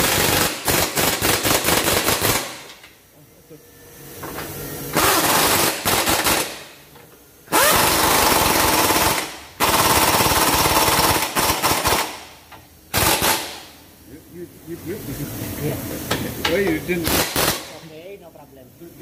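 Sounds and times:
pneumatic impact wrench hammering: 0:00.0 - 0:03.0, 0:04.2 - 0:06.8, 0:07.4 - 0:13.8, 0:16.1 - 0:17.8.

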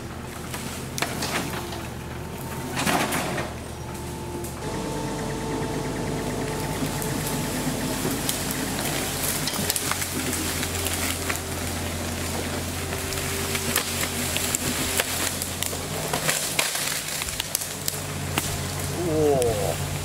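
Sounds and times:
engine idling: 0:00.0 - 0:20.0
footsteps on dry leaves: 0:06.6 - 0:19.0
twigs snapping: 0:08.2 - 0:20.0.

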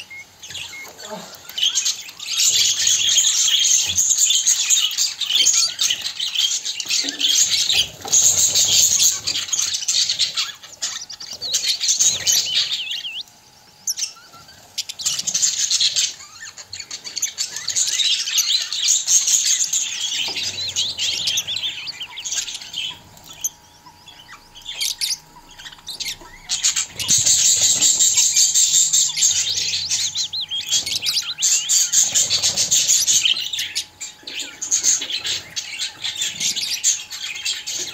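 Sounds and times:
budgerigars chattering and chirping: 0:00.0 - 0:37.9.

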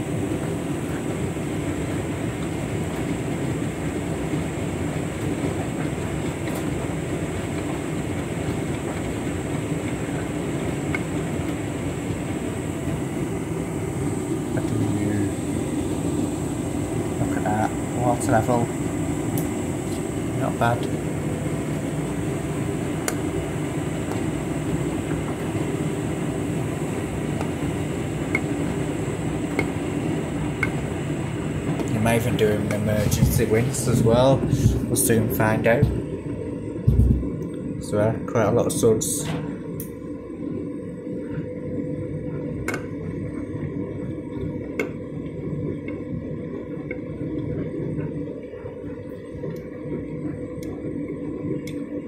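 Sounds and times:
washing machine drum rumbling: 0:14.5 - 0:37.5.

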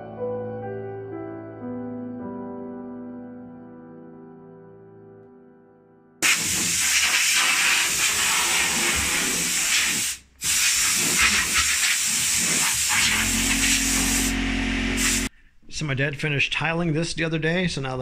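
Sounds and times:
electric sander grinding wood: 0:12.8 - 0:15.3.

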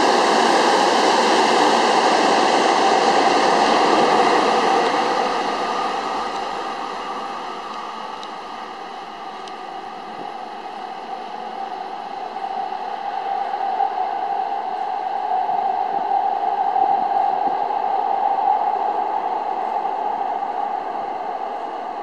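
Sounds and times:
electric train running: 0:00.0 - 0:17.6.

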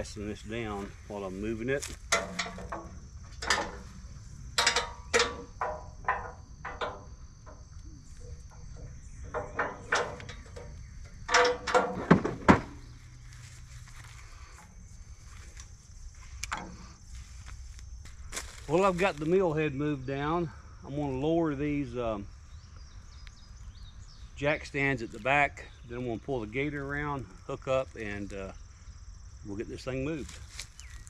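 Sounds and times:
insects buzzing: 0:00.0 - 0:31.0
clicks and knocks of sawmill head: 0:01.8 - 0:03.9, 0:04.6 - 0:07.8.

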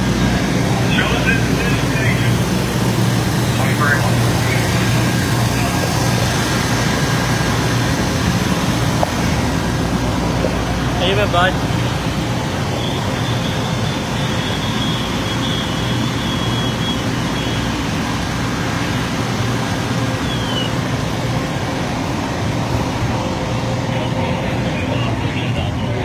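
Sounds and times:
diesel engines running: 0:00.0 - 0:26.0.

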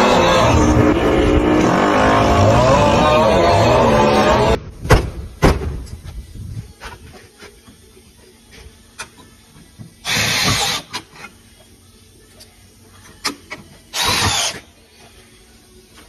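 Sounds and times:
cordless drill against metal: 0:13.9 - 0:14.6.

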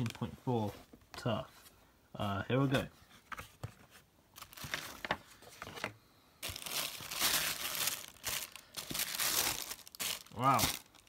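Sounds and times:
tissue paper crinkling: 0:04.4 - 0:05.4, 0:06.4 - 0:11.0.

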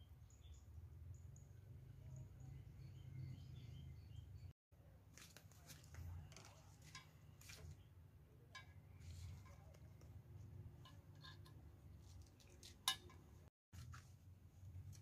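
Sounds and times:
bird chirps: 0:00.0 - 0:04.6.

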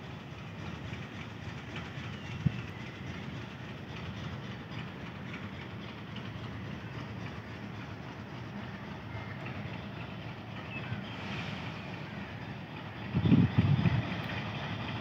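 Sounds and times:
train rumbling on rails: 0:00.0 - 0:15.0.

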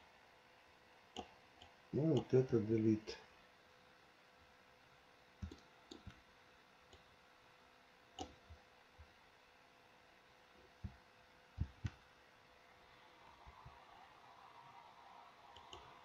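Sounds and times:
computer mouse clicking: 0:01.2 - 0:02.3, 0:05.4 - 0:06.2, 0:08.2 - 0:08.6, 0:11.6 - 0:12.0, 0:15.5 - 0:16.0.

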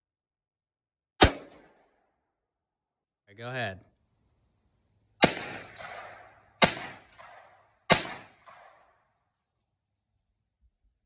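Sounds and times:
rifle shots with echo: 0:01.2 - 0:01.9, 0:05.2 - 0:09.2.

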